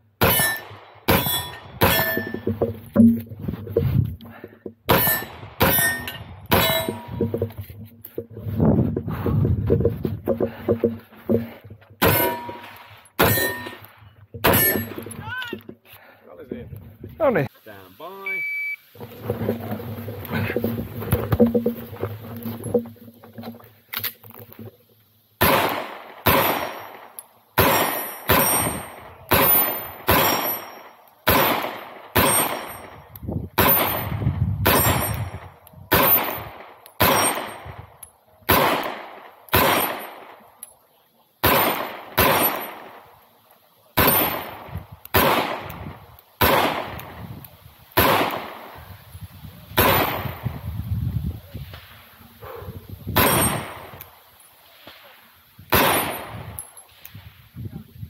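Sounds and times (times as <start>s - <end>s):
gunshots with echo: 25.4s - 32.9s, 33.6s - 37.7s, 38.5s - 40.4s, 41.4s - 43.0s, 44.0s - 47.2s, 48.0s - 48.6s, 49.8s - 50.4s, 53.2s - 54.0s, 55.7s - 56.6s.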